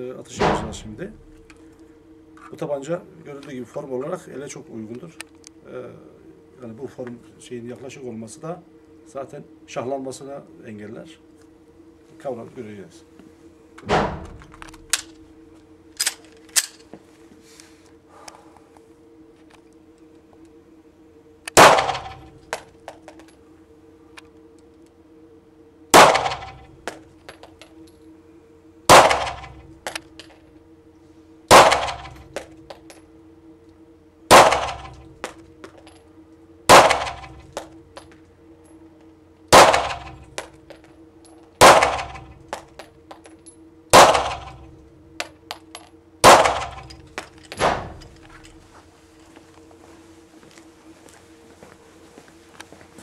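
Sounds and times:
pistol shots echoing indoors: 21.5 - 22.3, 26.0 - 26.7, 28.9 - 29.6, 31.5 - 32.2, 34.3 - 35.0, 36.7 - 37.4, 39.5 - 40.2, 41.6 - 42.3, 43.9 - 44.6, 46.2 - 47.0.

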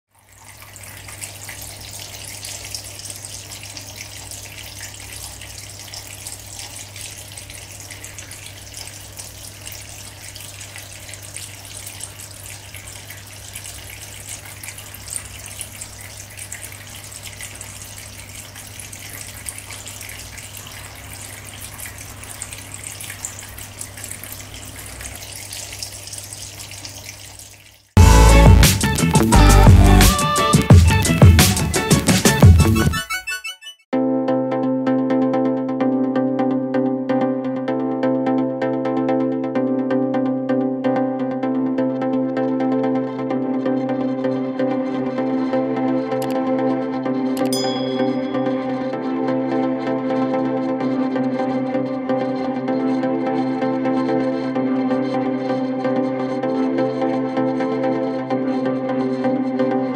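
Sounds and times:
fountain water trickling: 0.1 - 32.6, 47.4 - 48.9.

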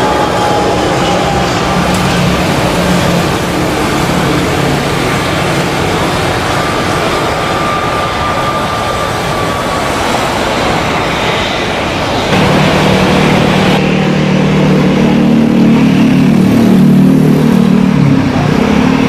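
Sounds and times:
jet engines roaring on rollout: 0.0 - 19.0
thin whine: 0.0 - 19.0.

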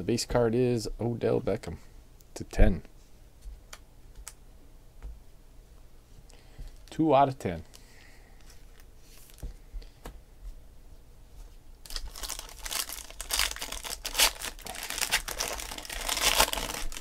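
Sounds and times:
foil pack crinkling and tearing: 11.8 - 17.0.

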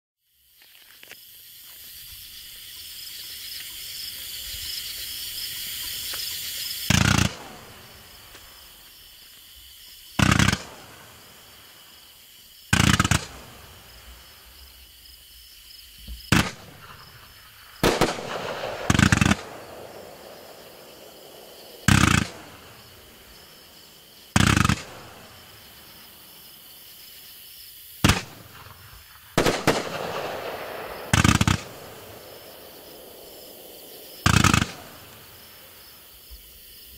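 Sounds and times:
fuse burning hiss: 0.4 - 36.9
firework shots: 6.8 - 8.6, 10.2 - 11.8, 12.7 - 14.5, 16.3 - 25.9, 28.0 - 36.1.

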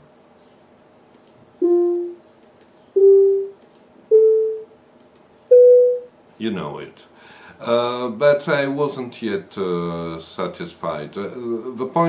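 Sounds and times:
electronic beep notes: 1.6 - 2.2, 3.0 - 4.7, 5.5 - 6.1.

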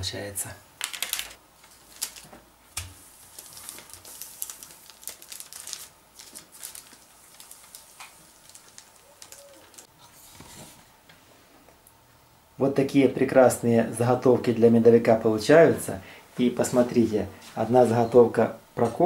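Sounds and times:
parchment rustling and crinkling: 0.8 - 10.9.

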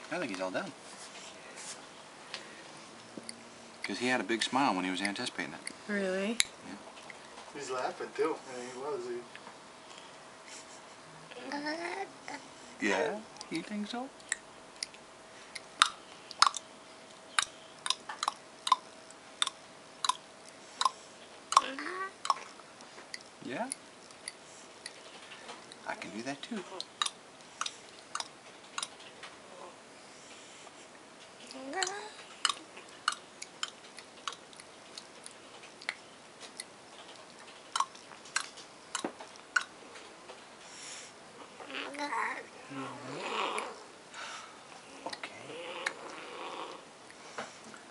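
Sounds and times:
sharp mouth clicks: 14.2 - 16.7, 17.3 - 25.0, 26.8 - 29.0, 31.4 - 39.8, 45.0 - 46.1
baby making clicking mouth sounds: 15.6 - 16.7, 20.8 - 22.5, 31.5 - 34.4.

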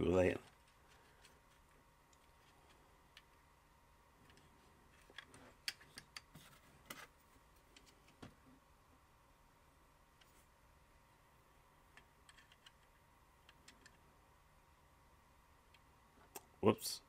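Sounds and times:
plastic toy parts clicking: 12.0 - 14.0.

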